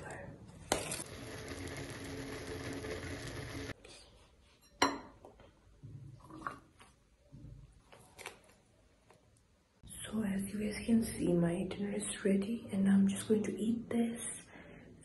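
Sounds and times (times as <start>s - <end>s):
noodles boiling in a saucepan: 0.8s - 3.8s.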